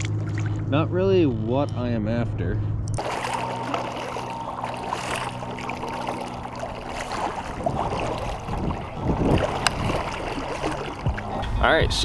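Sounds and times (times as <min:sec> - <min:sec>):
steady low hum: 0:00.0 - 0:12.0
paddle strokes splashing water: 0:03.0 - 0:11.5.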